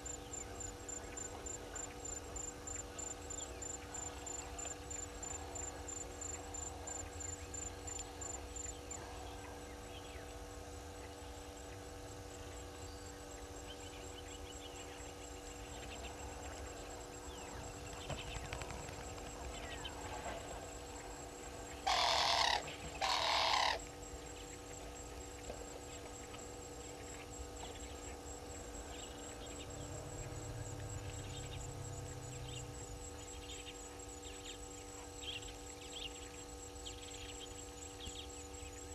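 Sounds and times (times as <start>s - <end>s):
pulsing insect trill: 0.0s - 38.9s
steady low hum: 0.0s - 38.9s
short loud calls: 21.9s - 23.8s.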